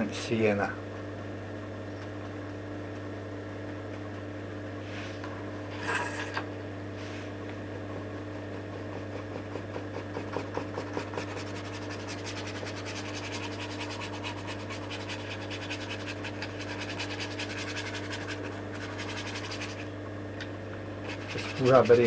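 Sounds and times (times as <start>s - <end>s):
paintbrush scratching: 8.9s - 19.9s, 21.0s - 22.0s.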